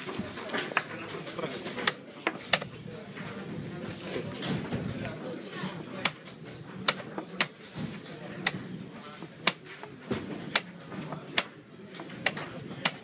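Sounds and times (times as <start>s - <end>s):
low murmur of voices: 0.0s - 13.0s
chess pieces clicking on board: 6.0s - 13.0s.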